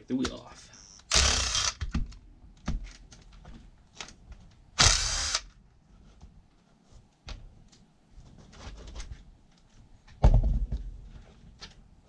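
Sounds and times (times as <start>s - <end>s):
power drill whirring: 0.8s - 1.8s, 4.8s - 5.5s.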